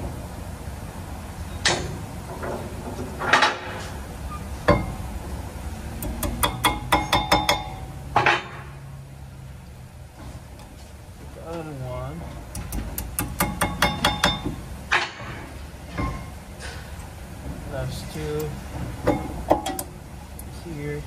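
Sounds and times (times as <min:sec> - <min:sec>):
metal clanks and knocks: 0:01.6 - 0:04.0, 0:04.6 - 0:05.0, 0:06.0 - 0:08.8, 0:12.2 - 0:20.6.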